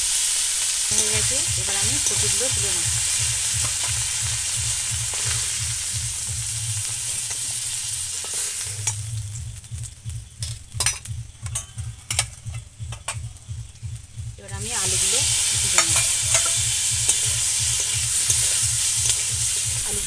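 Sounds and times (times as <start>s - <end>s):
vegetables sizzling in oil: 0.0s - 20.0s.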